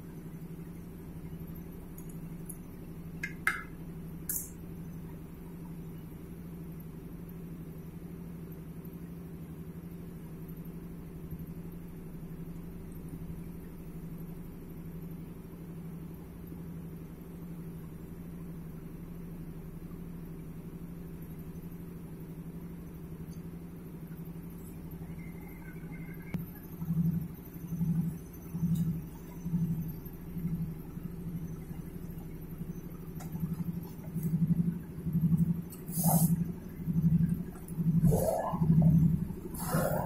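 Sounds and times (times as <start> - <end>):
machine humming: 22.6 - 40.0.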